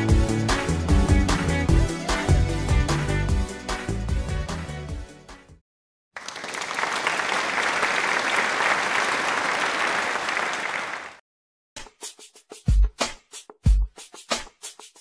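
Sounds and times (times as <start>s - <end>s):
music: 0.0s - 5.6s, 11.8s - 15.0s
crowd applauding: 6.2s - 11.2s.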